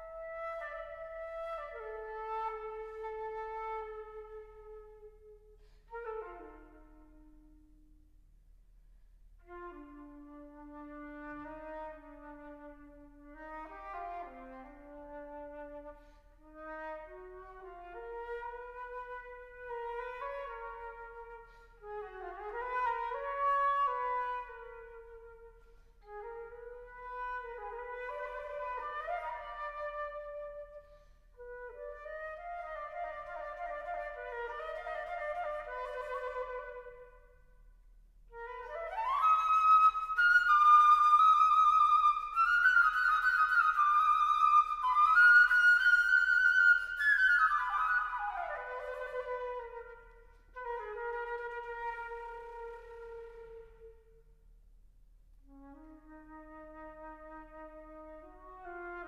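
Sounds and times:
solo flute playing: 0:00.0 - 0:08.1, 0:09.4 - 0:54.5, 0:55.4 - 0:59.0
flutist breathing: 0:05.5 - 0:06.0, 0:15.9 - 0:16.4, 0:21.4 - 0:21.9, 0:30.8 - 0:31.4.

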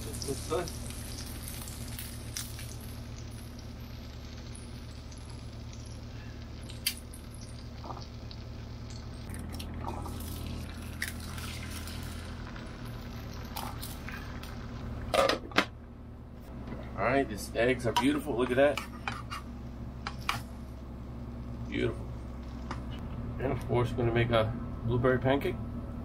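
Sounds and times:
fat sizzling in a skillet: 0:00.0 - 0:09.3, 0:10.0 - 0:14.8
steady low hum: 0:00.0 - 0:26.0
eggs cracking: 0:06.6 - 0:14.6.

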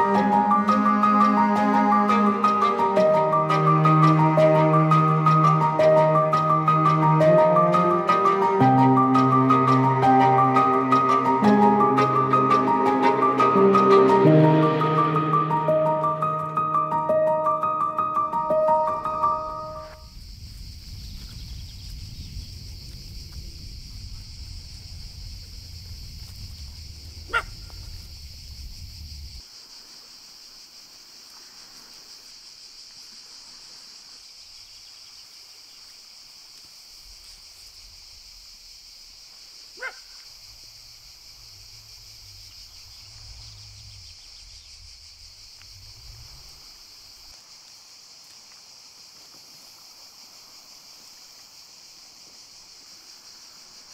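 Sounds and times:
steady high hiss: 0:00.0 - 0:53.9
low rumble: 0:19.9 - 0:29.4, 0:40.3 - 0:47.4
dog barking: 0:27.3 - 0:27.6, 0:39.8 - 0:40.2.

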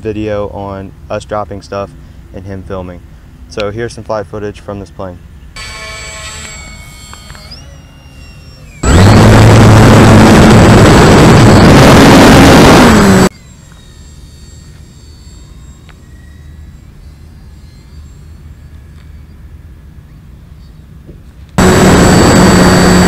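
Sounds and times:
faint motor whine: 0:00.0 - 0:23.0
model plane motor and propeller: 0:05.6 - 0:19.4, 0:21.6 - 0:23.0.

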